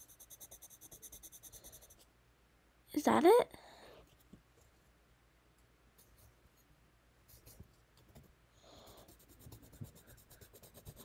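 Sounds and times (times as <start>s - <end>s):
pencil scratching on paper: 0.0s - 2.0s, 8.8s - 11.0s.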